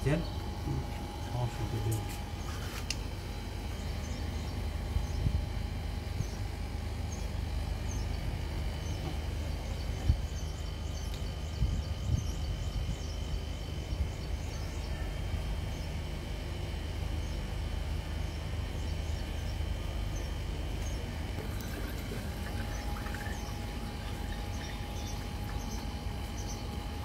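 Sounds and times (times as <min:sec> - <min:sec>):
low outdoor rumble: 0:00.0 - 0:27.0
bird chirping: 0:18.2 - 0:27.0.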